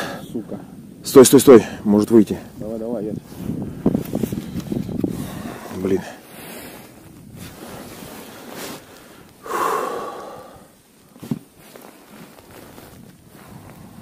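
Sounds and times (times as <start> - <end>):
man sighing heavily: 9.4 - 10.7.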